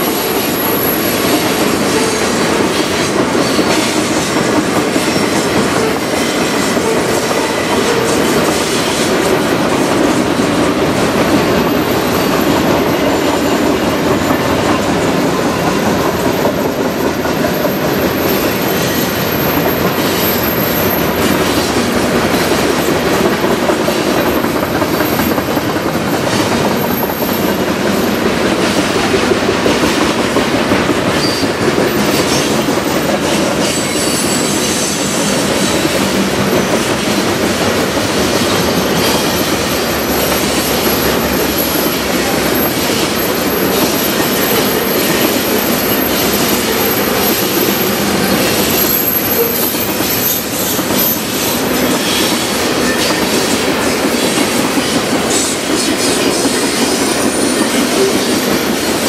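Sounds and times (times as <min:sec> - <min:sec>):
high wheel squeal: 0:00.0 - 0:10.3, 0:11.4 - 0:23.3, 0:31.1 - 0:59.0
train wheels rumbling on rails: 0:00.0 - 0:59.0.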